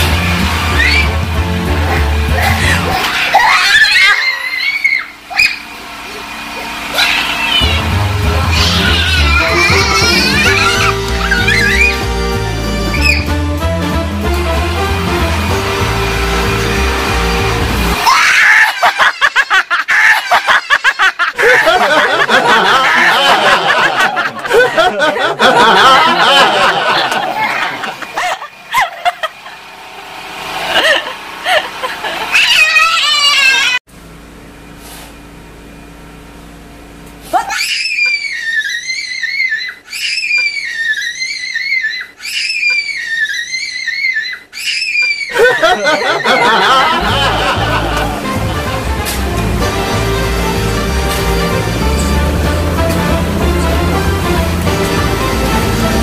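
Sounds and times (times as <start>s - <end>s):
background music: 0.0s - 3.0s, 7.8s - 18.0s, 46.8s - 56.0s
toddler shrieking and laughing: 0.7s - 1.2s, 2.4s - 5.6s, 6.9s - 12.1s, 12.9s - 13.3s, 18.0s - 25.5s, 32.2s - 33.8s, 37.3s - 48.1s.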